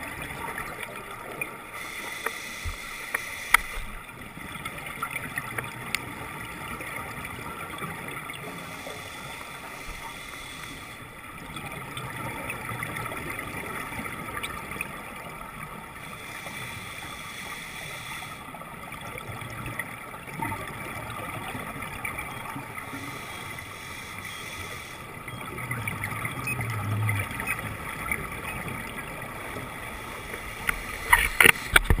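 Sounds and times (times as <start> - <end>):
muffled underwater noise: 0.0 - 32.0
diver breathing on regulator: 1.7 - 3.9, 8.5 - 11.1, 16.0 - 18.5, 22.8 - 25.2.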